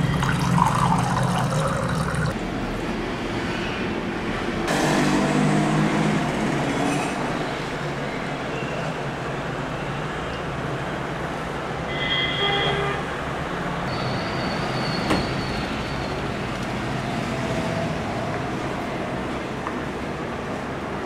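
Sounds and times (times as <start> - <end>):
city traffic rumble: 0.0 - 21.0
vehicle horn: 11.9 - 13.1.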